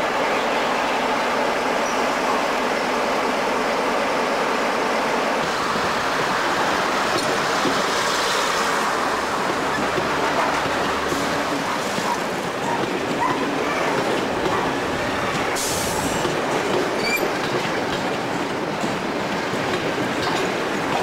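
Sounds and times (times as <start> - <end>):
train wheels clicking over rail joints: 5.6 - 21.0
train wheels squealing: 17.0 - 17.4.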